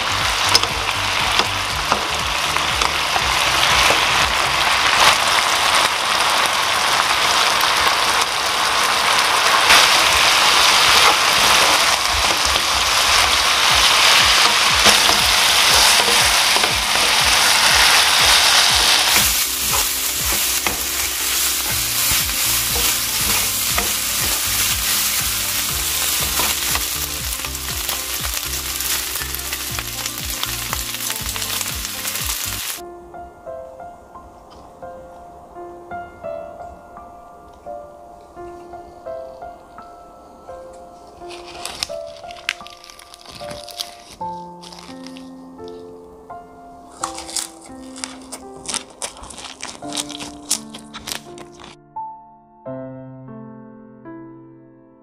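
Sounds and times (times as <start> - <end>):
meat sizzling in a pan: 0.0 - 32.8, 46.9 - 51.8
wooden spatula stirring: 9.1 - 32.8, 41.3 - 45.8, 46.9 - 51.8.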